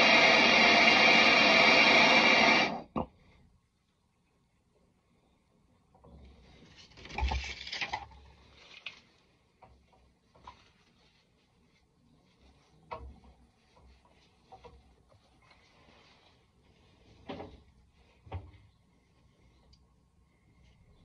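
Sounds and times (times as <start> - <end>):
cloth rag rubbing on pipe: 10.1 - 19.6.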